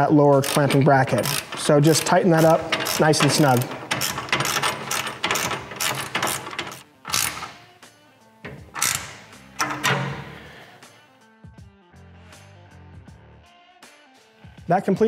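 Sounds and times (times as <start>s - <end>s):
background music: 0.0s - 15.0s
socket ratchet clicking: 0.4s - 7.7s, 8.5s - 10.6s.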